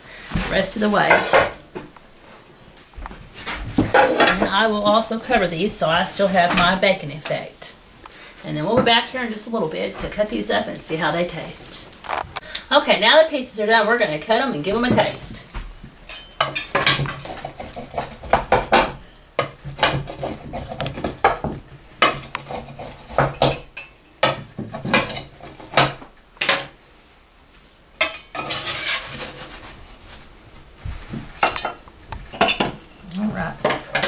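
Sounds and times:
pizza cutter scraping metal pans: 16.6s - 19.0s, 19.7s - 21.4s, 22.0s - 23.7s, 28.3s - 29.8s.

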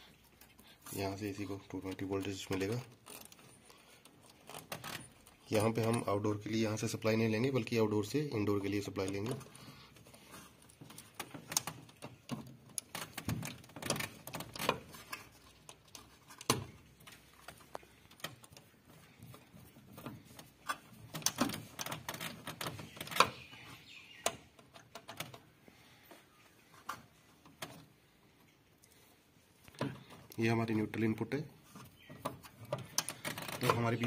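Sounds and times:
clicks and light knocks: 8.6s - 34.0s.

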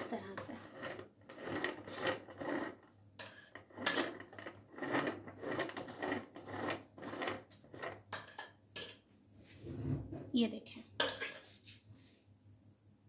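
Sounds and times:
metal spatula scraping cream: 0.0s - 9.0s.

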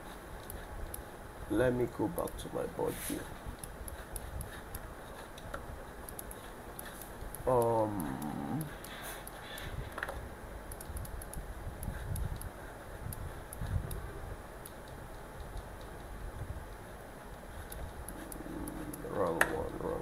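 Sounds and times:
low background rumble: 0.0s - 20.0s
computer clicks: 10.7s - 12.5s.

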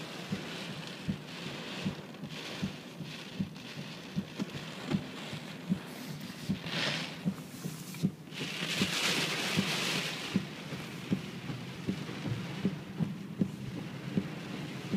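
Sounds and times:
heavy rain: 0.0s - 14.9s
road spray from moving car: 2.8s - 14.9s
soft repeating knock: 10.3s - 14.9s.

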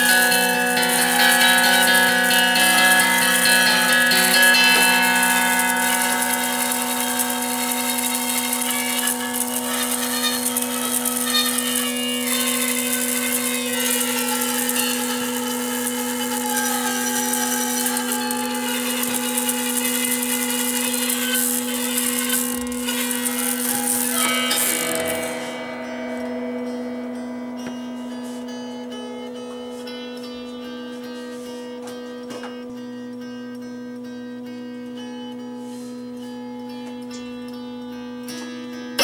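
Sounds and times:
rapid motor-like rattle: 0.0s - 25.4s
held string tone: 0.0s - 39.0s.

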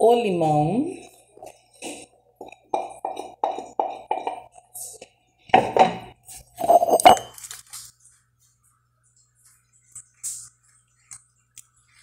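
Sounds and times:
utensils clinking on a pot: 5.6s - 7.6s.

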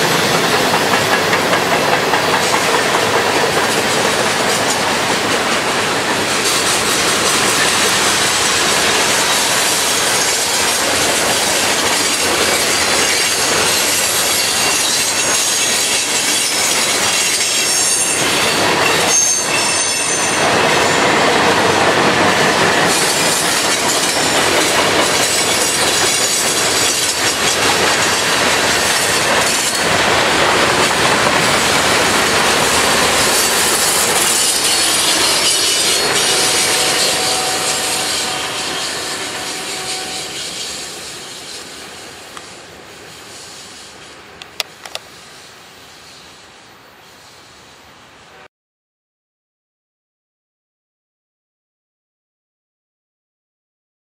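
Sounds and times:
freight train cars rolling past: 0.0s - 48.3s
high wheel squeal: 6.2s - 21.2s, 31.7s - 42.4s.

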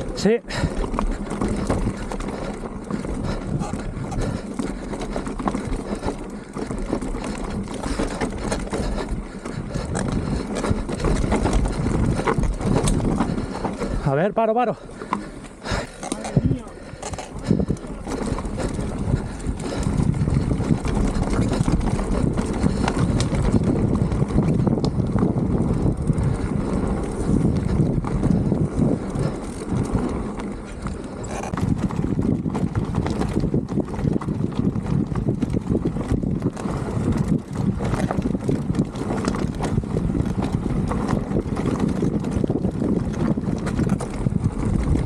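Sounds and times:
bike rattling over rocks: 0.0s - 45.0s
bike tyres rumbling over stones: 0.0s - 45.0s
wind buffeting microphone: 0.0s - 45.0s.

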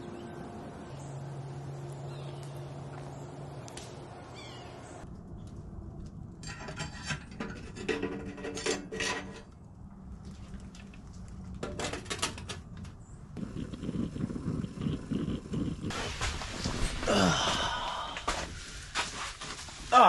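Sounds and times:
metal coffee pot clinking: 6.4s - 9.5s
metal lid scraping and clinking: 6.4s - 9.5s.

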